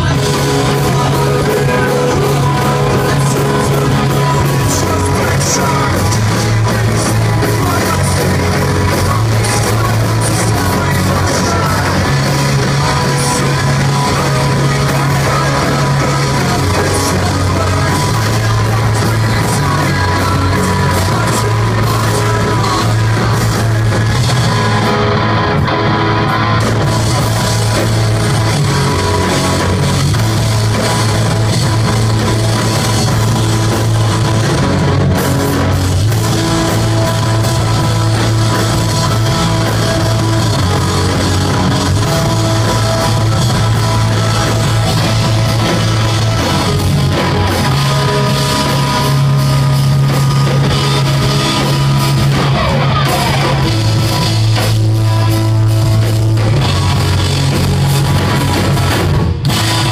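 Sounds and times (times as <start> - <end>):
bass guitar: 0.0 - 59.9
drum kit: 0.0 - 59.9
electric guitars: 0.0 - 59.9.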